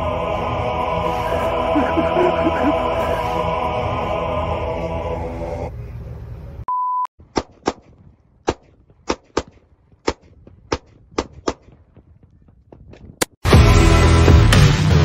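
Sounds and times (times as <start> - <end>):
short beep: 6.7 - 7.1.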